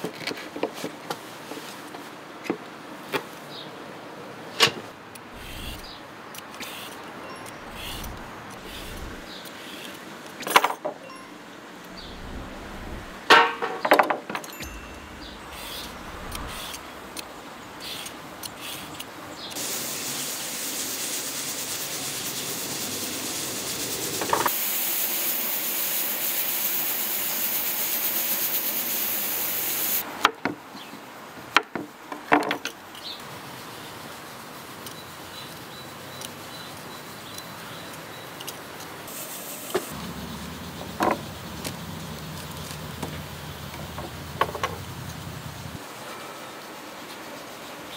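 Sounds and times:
pressure cooker steam hiss: 17.8 - 30.0, 39.1 - 40.0.

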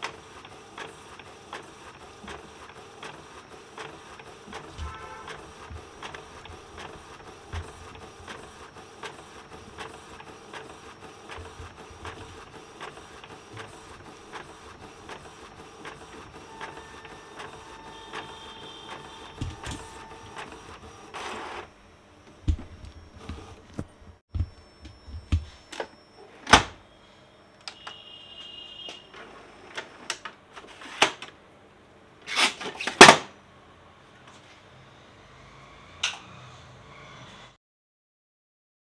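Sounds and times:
inkjet printer ticking: 0.0 - 21.7.

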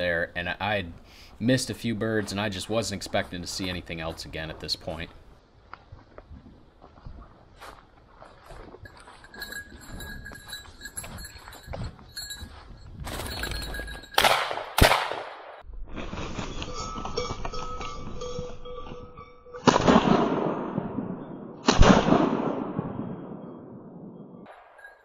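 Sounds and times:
dog collar bell tinkling: 8.8 - 14.3, 16.8 - 19.6, 24.7 - 25.0
shotgun shots: 14.2 - 15.6, 19.6 - 23.8.

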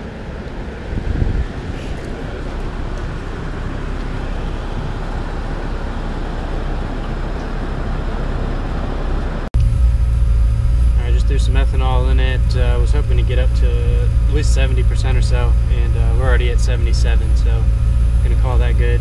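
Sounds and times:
rushing air: 0.0 - 14.9
engine rumbling on dyno: 0.0 - 19.0
steady low hum: 0.0 - 19.0.

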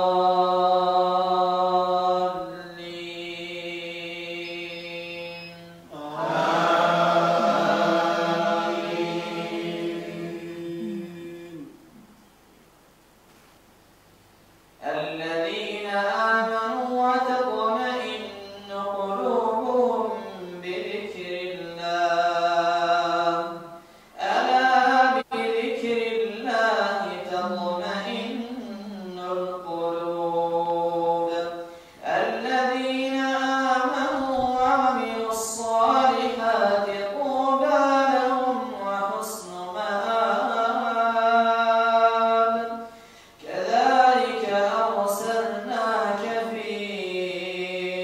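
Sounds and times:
man chanting melodically: 0.0 - 12.0, 14.8 - 48.0.

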